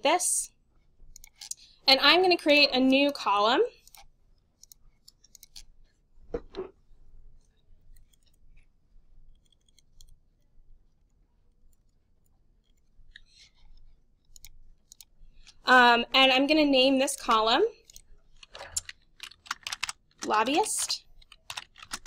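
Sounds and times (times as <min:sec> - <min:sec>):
mouse and keyboard clicks: 0:01.1 - 0:01.6, 0:03.8 - 0:05.7, 0:09.3 - 0:10.2, 0:12.6 - 0:15.6.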